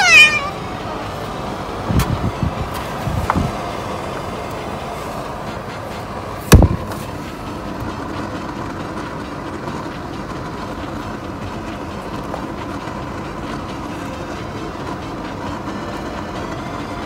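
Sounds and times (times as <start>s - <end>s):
fan whirring: 0.0s - 17.0s
loud thump: 6.5s - 6.8s.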